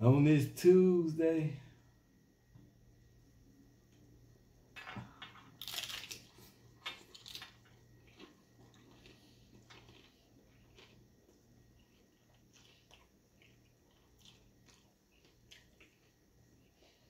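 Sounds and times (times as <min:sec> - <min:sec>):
taco shell crunching: 0:05.5 - 0:16.5.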